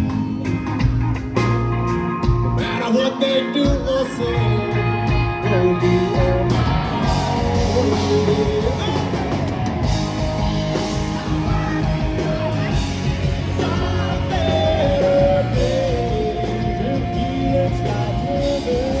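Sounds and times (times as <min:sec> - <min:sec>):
bass guitar: 0:00.0 - 0:19.0
drums: 0:00.0 - 0:19.0
electric guitars: 0:00.0 - 0:19.0
person singing: 0:02.6 - 0:09.5, 0:11.0 - 0:19.0.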